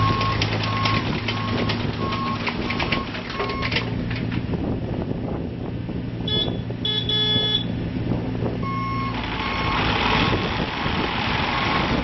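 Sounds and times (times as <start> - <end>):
diesel engine running: 0.0 - 12.0
travel alarm beeping: 6.3 - 7.7.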